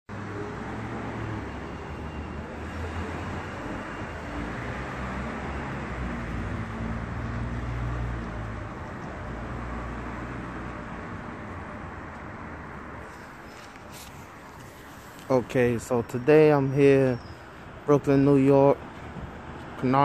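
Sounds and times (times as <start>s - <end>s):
vehicle engines rumbling: 0.1s - 20.0s
traffic hiss: 13.0s - 19.1s.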